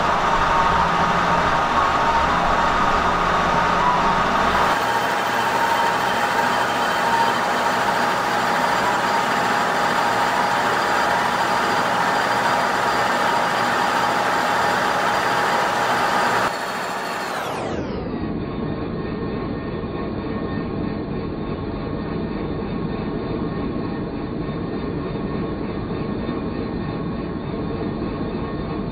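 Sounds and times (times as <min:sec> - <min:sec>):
milling machine whine: 0:00.0 - 0:18.4.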